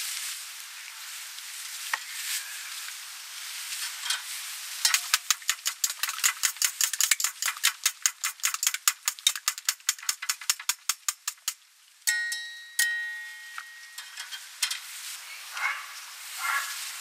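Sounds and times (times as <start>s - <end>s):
whisk clicking against metal bowl: 4.9s - 11.6s
metal bowl ringing: 12.1s - 14.3s.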